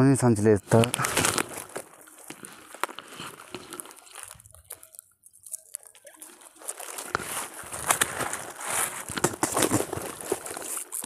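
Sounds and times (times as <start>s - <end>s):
water splashing: 1.0s - 11.0s
water spilling off net: 5.8s - 11.0s.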